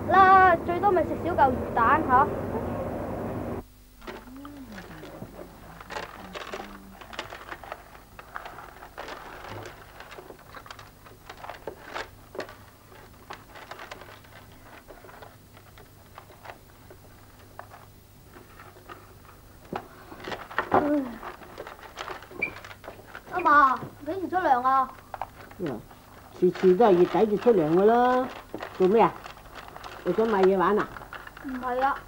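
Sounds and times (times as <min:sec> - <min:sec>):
low steady hum: 0:00.0 - 0:32.0.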